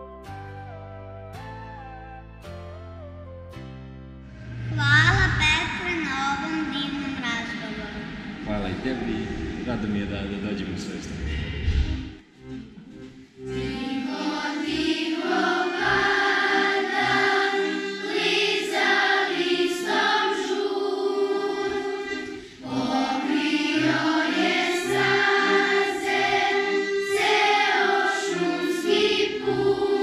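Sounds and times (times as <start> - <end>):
piano accordion chords: 0.0 - 4.8, 12.0 - 30.0
children's choir singing: 12.7 - 30.0.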